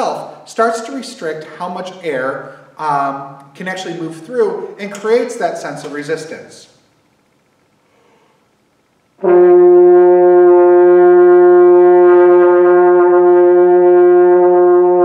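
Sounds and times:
french horn long held note: 9.2 - 15.0.

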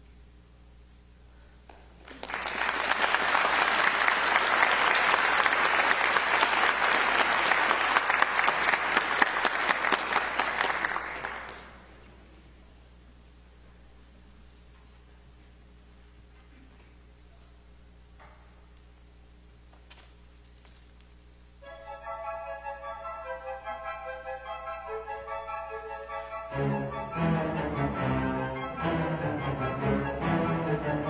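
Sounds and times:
audience applause: 2.0 - 11.9.

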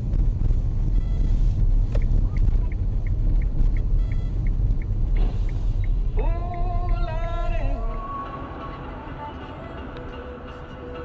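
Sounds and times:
vehicle engine and road noise: 0.0 - 11.0
short high beeps: 0.9 - 1.4, 3.9 - 4.5.

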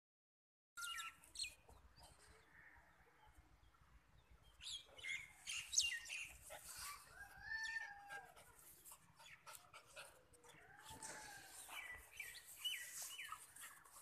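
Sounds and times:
small birds chirping: 0.8 - 7.1, 8.4 - 14.0
rooster crowing: 7.1 - 8.3.

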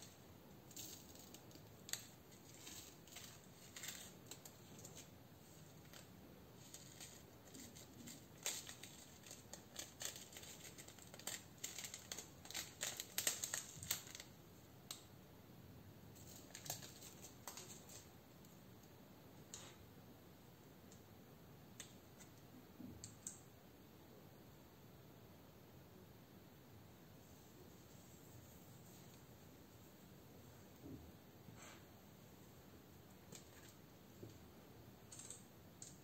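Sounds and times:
plastic beads clicking and rattling: 0.7 - 5.1, 5.8 - 14.3, 35.1 - 36.0.

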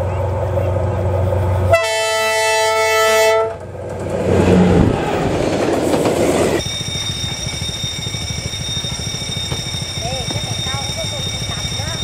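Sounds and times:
two-note train horn: 1.7 - 3.6
train wheels clattering on rails: 3.6 - 12.0.

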